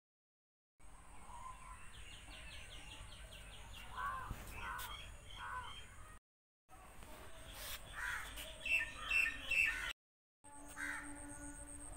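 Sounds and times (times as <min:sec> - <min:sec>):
harsh caw-like bird calls: 0:03.9 - 0:05.9, 0:07.9 - 0:09.9, 0:10.7 - 0:11.2.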